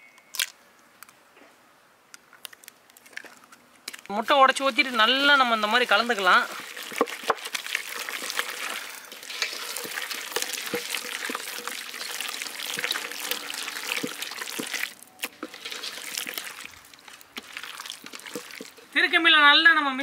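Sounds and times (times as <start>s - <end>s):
wet squishing of hand mixing: 3.9s - 19.2s.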